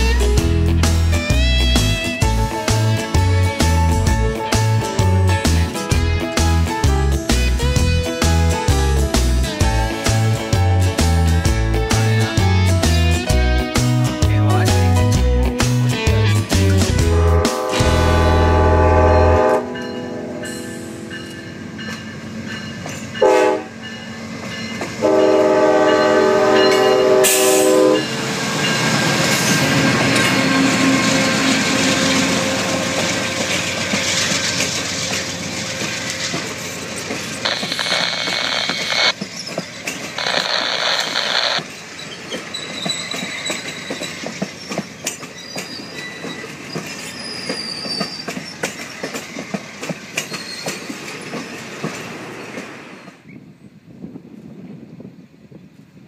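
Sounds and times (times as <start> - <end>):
train rushing past: 0.0 - 53.3
train horn blasts: 17.0 - 21.0, 23.2 - 23.8, 25.0 - 28.1
wheels clicking over rail joints: 28.6 - 37.4, 39.1 - 40.2, 41.6 - 53.3
high-pitched squeals: 37.4 - 44.8.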